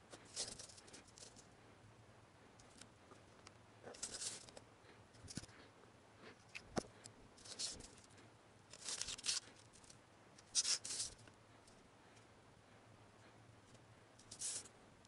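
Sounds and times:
pen scratching on paper: 10.5 - 11.1.

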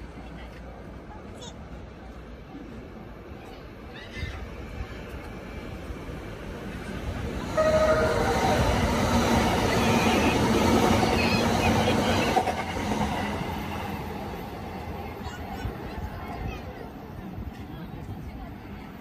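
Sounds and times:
electric train passing: 1.6 - 19.0
train horn blast: 7.5 - 9.1.

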